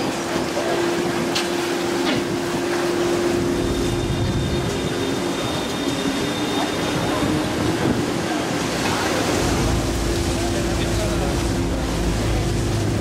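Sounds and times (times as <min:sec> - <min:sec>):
boat engine droning: 0:00.0 - 0:13.0
water rushing: 0:00.0 - 0:13.0.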